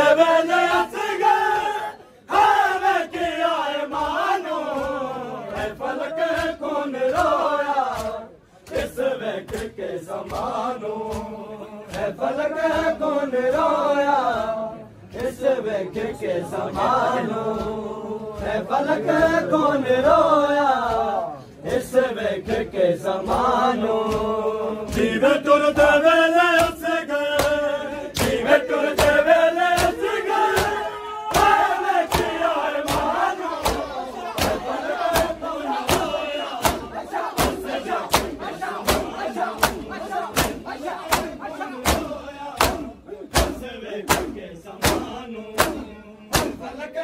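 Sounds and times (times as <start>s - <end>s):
men chanting a lament: 0.0s - 47.0s
chest-beating slaps: 3.1s - 13.8s, 20.8s - 46.8s.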